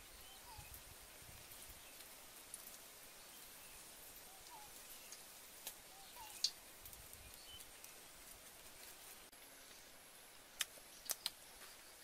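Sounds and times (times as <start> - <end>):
faint rising bird chirps: 0.0 - 2.0, 3.1 - 5.2, 5.8 - 6.6
small ticks and clicks: 10.6 - 11.4.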